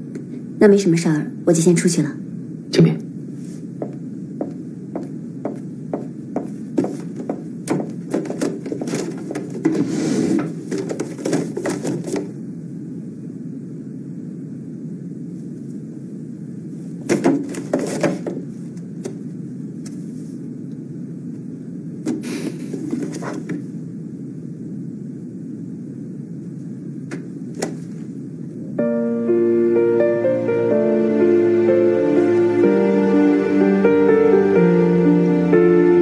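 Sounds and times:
low room hum: 0.0s - 36.0s
paper pages rustling: 6.8s - 12.3s, 17.1s - 18.4s, 22.7s - 23.6s.

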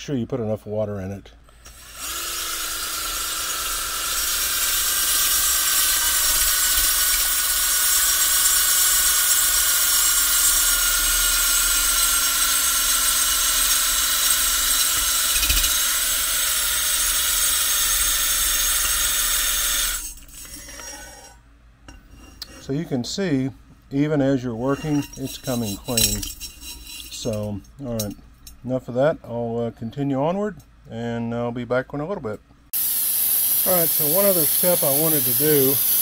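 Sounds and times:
power tool wire brush scouring: 1.7s - 21.4s, 24.5s - 27.5s, 32.8s - 36.0s.

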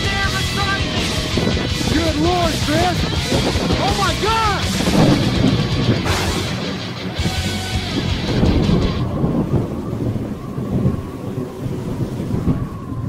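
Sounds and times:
thunder rumbling: 0.0s - 13.0s.

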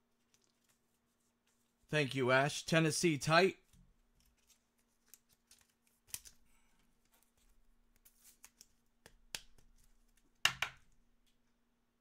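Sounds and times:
cards rustling and sliding: 4.0s - 10.4s.

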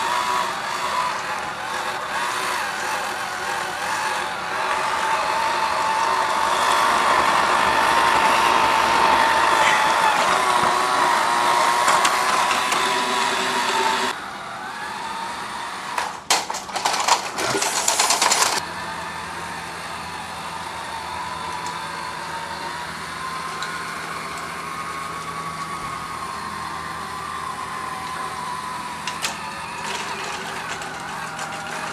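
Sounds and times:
toy train motor whine: 0.0s - 31.9s
train clattering: 29.1s - 31.9s.

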